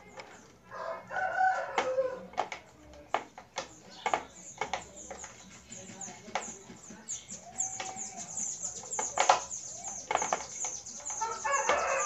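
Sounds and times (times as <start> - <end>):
small birds chirping: 0.0 - 1.1, 1.9 - 12.0
rooster crowing: 0.7 - 2.2, 11.2 - 12.0
hands clicking on plastic device: 1.7 - 6.9.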